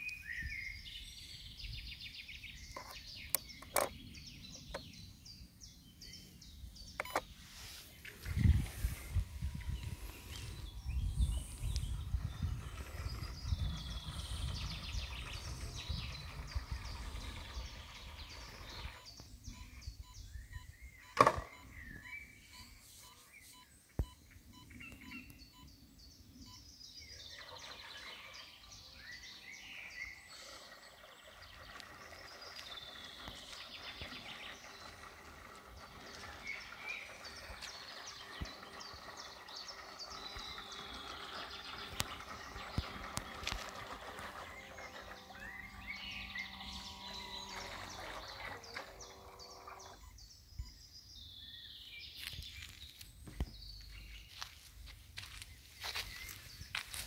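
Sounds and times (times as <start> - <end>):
birds singing: 0.0 - 57.0.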